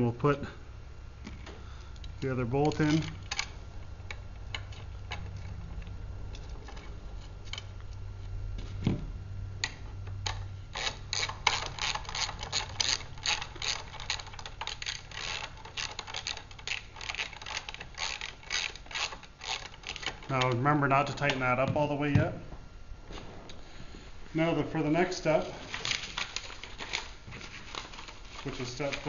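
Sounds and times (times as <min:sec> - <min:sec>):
ratchet wrench clicking: 0:10.2 - 0:20.6.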